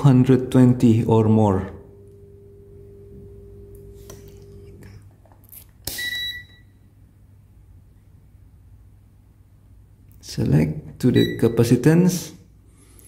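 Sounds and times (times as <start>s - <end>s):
faint steady hum: 0.0s - 13.0s
short electronic beep: 5.9s - 6.7s, 11.2s - 11.6s.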